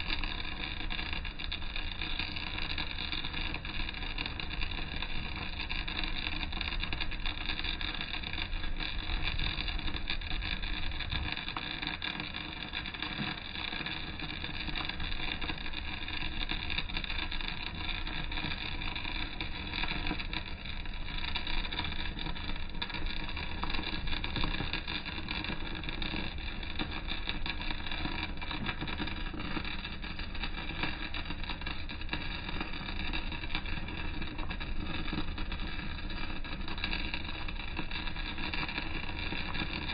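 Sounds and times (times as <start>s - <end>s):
welding arc crackling and hissing: 0.0s - 39.9s.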